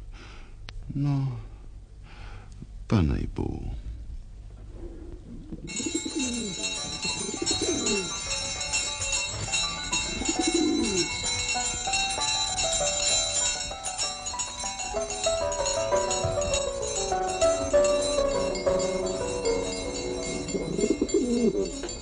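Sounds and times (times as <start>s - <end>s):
pigeons cooing: 4.7s - 8.2s, 9.9s - 11.1s, 19.6s - 22.0s
music with bright jingling: 5.7s - 22.0s.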